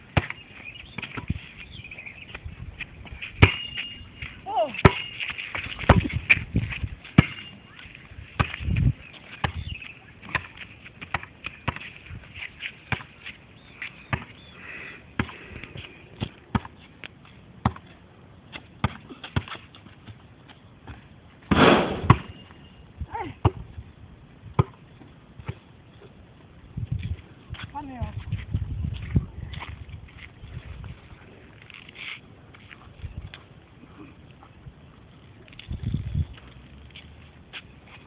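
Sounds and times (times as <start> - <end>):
basketball bouncing on hard surface: 7.2 - 7.5, 9.4 - 11.9, 14.1 - 14.3, 16.2 - 16.8, 17.6 - 17.9, 24.6 - 24.8
burst of noise: 21.5 - 22.2.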